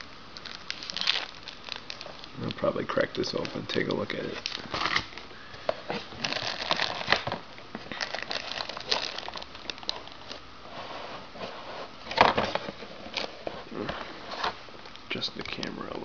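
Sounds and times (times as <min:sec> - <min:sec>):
plastic bags crinkling: 0:00.0 - 0:10.5.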